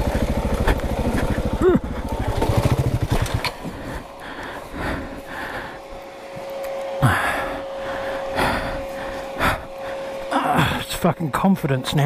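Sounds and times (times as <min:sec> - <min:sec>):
steady hum: 0:00.0 - 0:12.0
rider breathing hard in helmet: 0:03.5 - 0:10.8.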